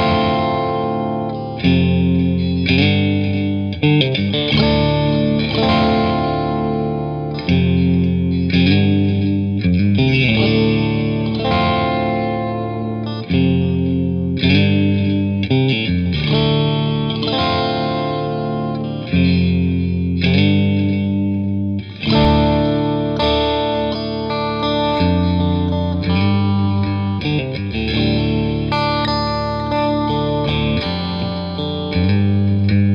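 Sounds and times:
electric guitar strumming chords: 0.0s - 32.9s.

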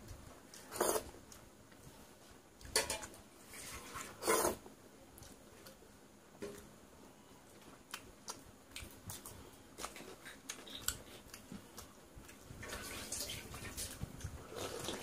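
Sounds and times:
wet clicks and smacks of eating: 7.5s - 12.5s.

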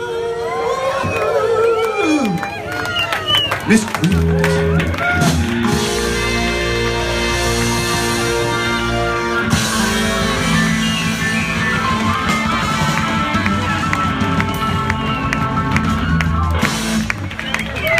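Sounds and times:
drums: 3.2s - 17.9s
keyboard: 3.5s - 17.9s
electric bass: 3.8s - 17.9s
saxophone: 4.4s - 16.0s.

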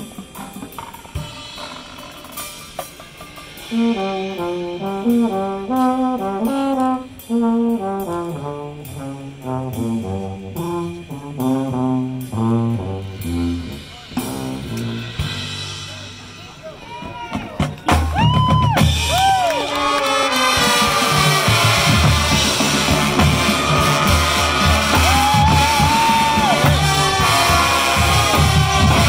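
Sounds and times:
percussion ticking: 0.0s - 12.9s
brass section playing chords: 0.0s - 16.8s, 18.9s - 29.0s.

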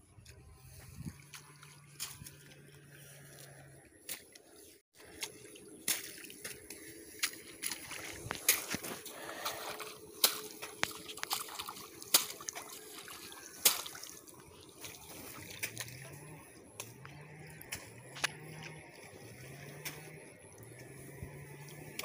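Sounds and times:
water and mud splashing: 0.0s - 22.0s
sharp splats: 5.0s - 16.2s.

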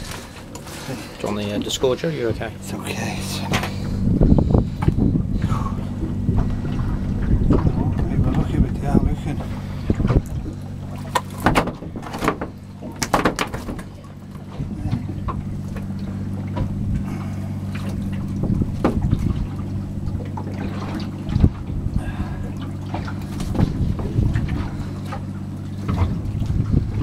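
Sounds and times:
boat engine idling: 0.0s - 27.0s
knocks and clatters on deck: 11.2s - 13.8s.

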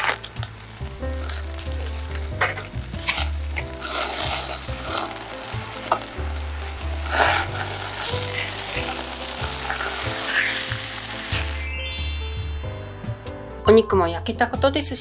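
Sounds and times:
fat crackling and popping: 0.0s - 11.6s
beef sizzling on grill: 0.0s - 13.1s.

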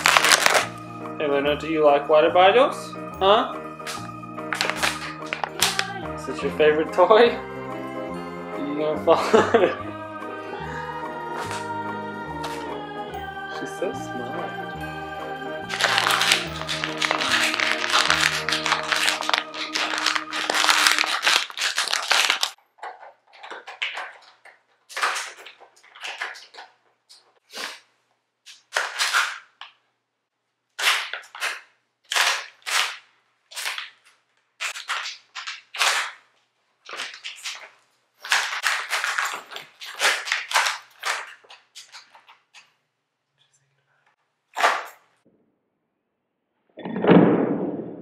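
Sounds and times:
plastic bottle crinkling: 0.0s - 0.9s, 3.8s - 6.0s, 11.3s - 11.7s, 15.7s - 27.8s, 28.5s - 29.8s, 30.8s - 42.9s, 44.5s - 45.2s.

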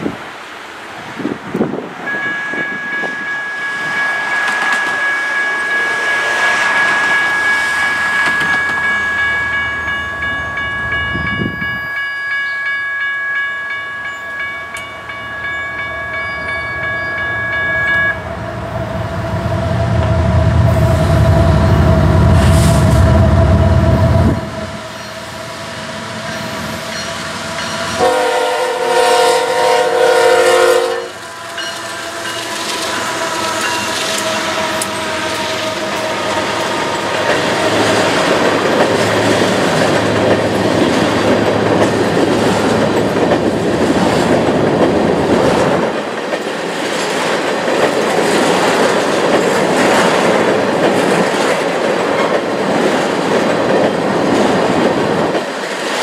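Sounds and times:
crossing bell ringing: 2.0s - 22.4s, 26.2s - 44.2s
diesel locomotive rumble: 18.1s - 46.2s
locomotive air horn: 28.0s - 37.8s.

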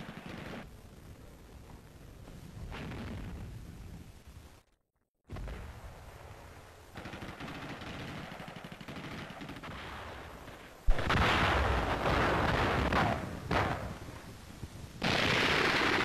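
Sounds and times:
rapid gunfire: 0.0s - 0.7s, 7.0s - 10.0s, 15.0s - 16.0s.

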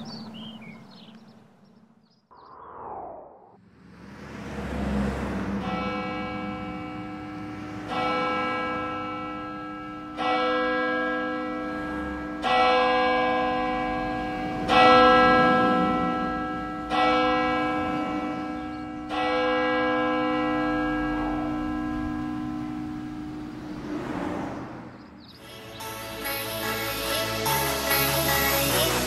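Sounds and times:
church bell tolling: 5.6s - 23.6s.

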